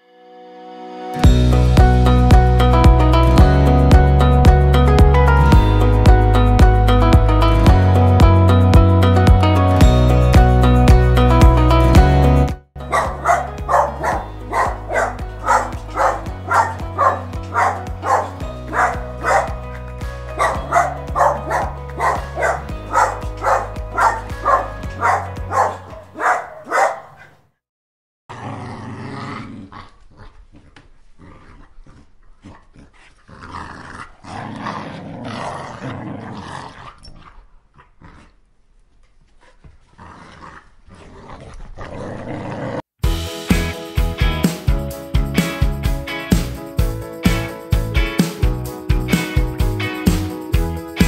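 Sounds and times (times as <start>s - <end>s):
upbeat background music: 1.0s - 26.5s, 43.0s - 51.0s
small dog growling: 28.3s - 38.4s, 39.4s - 42.8s.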